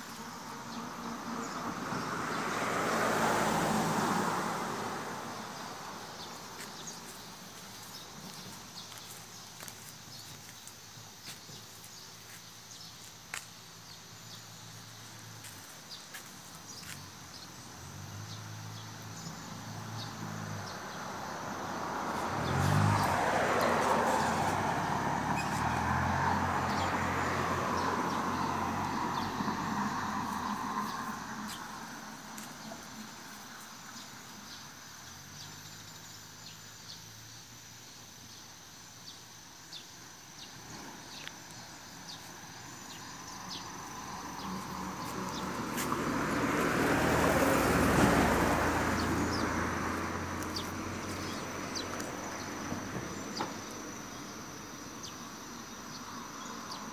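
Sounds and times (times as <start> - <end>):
vehicle passing by: 0.3 - 9.0, 16.2 - 34.0, 40.5 - 55.0.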